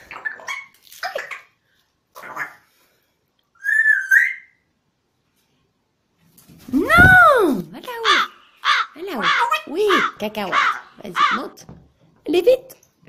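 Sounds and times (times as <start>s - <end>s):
parrot whistling: 3.6s - 4.6s.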